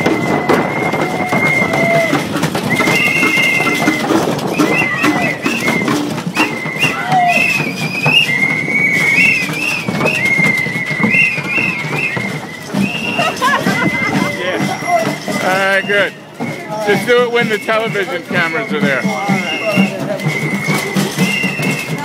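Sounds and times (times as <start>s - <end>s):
hand drumming: 0.0s - 7.3s
crowd noise: 0.0s - 22.0s
high whistle-like tune: 0.0s - 22.0s.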